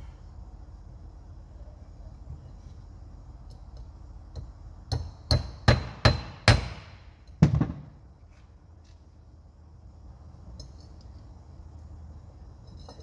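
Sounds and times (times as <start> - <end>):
hammer striking steel: 4.3 - 7.0.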